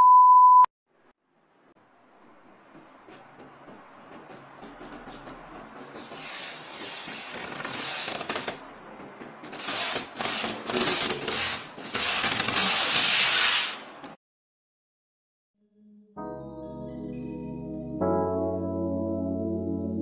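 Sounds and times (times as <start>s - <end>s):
plastic film peeling: 6.0s - 8.6s, 9.5s - 13.8s.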